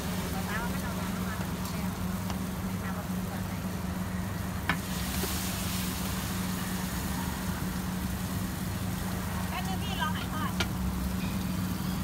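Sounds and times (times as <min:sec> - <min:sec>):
batter sizzling on griddle: 0:00.0 - 0:12.0.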